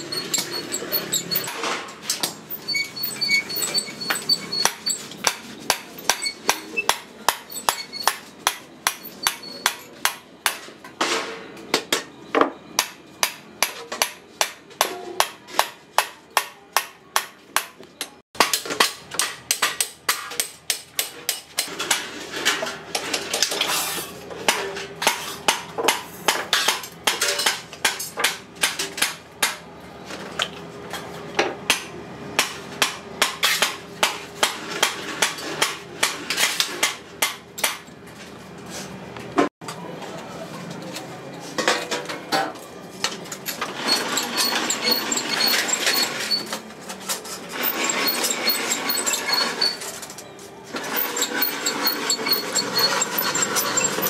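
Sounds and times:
steel cylinder ringing: 0:00.0 - 0:01.5, 0:02.5 - 0:05.1, 0:43.8 - 0:46.5, 0:50.9 - 0:54.0.

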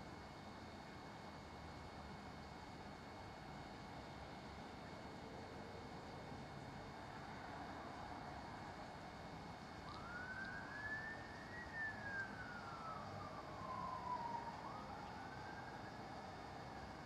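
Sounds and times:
steady background hiss: 0:01.9 - 0:17.0
siren wailing: 0:09.9 - 0:16.3.

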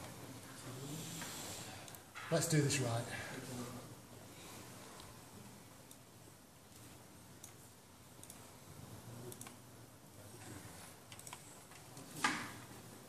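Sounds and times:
mouse and keyboard clicks: 0:11.1 - 0:12.4.

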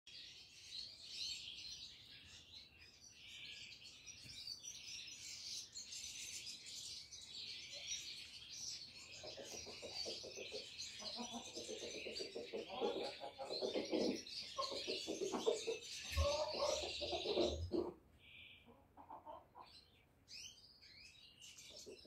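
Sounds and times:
small birds chirping: 0:00.1 - 0:22.0
pigeons cooing: 0:11.2 - 0:18.0.

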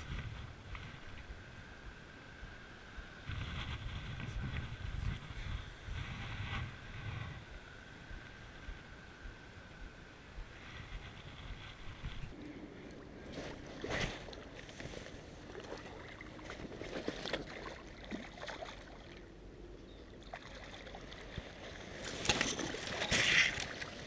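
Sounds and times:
water splashing: 0:15.5 - 0:19.3, 0:20.2 - 0:24.0
reeds rustling: 0:21.5 - 0:24.0.

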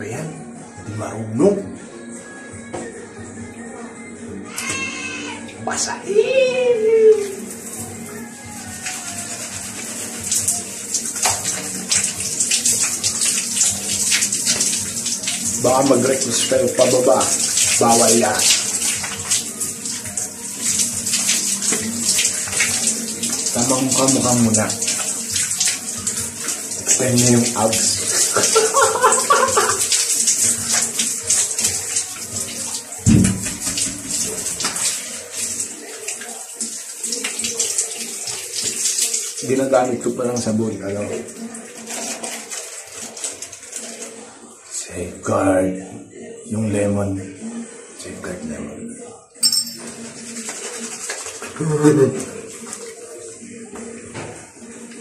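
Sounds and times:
shower spray hissing: 0:06.8 - 0:39.5
water splashes: 0:08.8 - 0:40.0.

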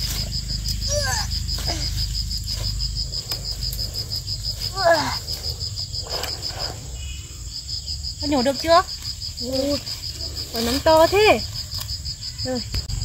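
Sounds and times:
low rumble: 0:00.0 - 0:08.2, 0:11.5 - 0:13.0
insect chirping: 0:00.0 - 0:13.0.

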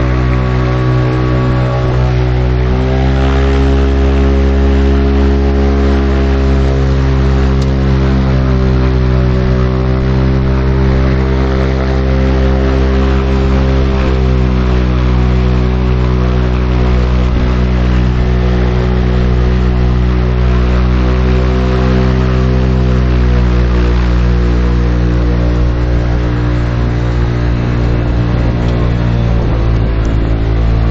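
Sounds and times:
aircraft engine and propeller: 0:00.0 - 0:30.9.

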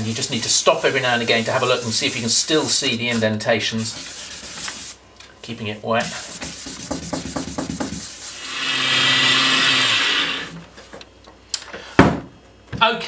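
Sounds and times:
sandpaper rubbing on wet plastic: 0:00.0 - 0:09.0.

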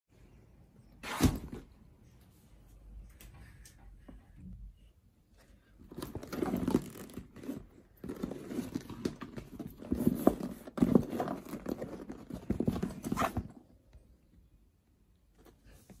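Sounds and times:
canvas bag rustling: 0:05.9 - 0:13.5.

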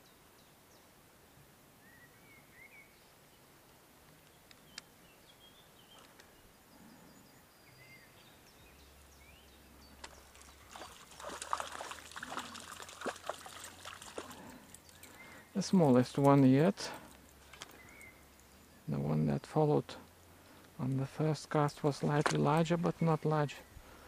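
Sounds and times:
faint bird chirps: 0:01.8 - 0:03.4, 0:17.6 - 0:19.4
water splashing and trickling: 0:10.0 - 0:17.8.

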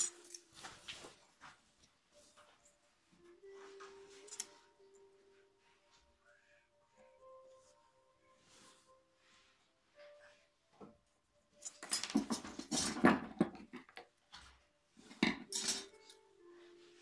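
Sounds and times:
tools clattering on wooden workbench: 0:11.6 - 0:14.5, 0:15.1 - 0:16.2.

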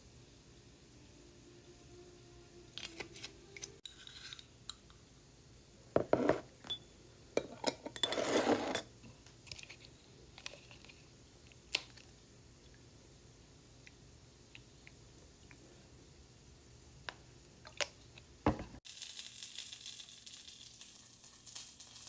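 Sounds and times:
metal spoon clinking on glass: 0:06.6 - 0:08.9.

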